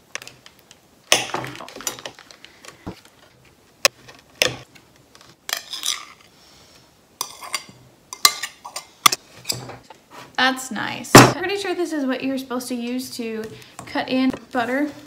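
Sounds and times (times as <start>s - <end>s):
knife scraping plate: 7.2s - 9.8s.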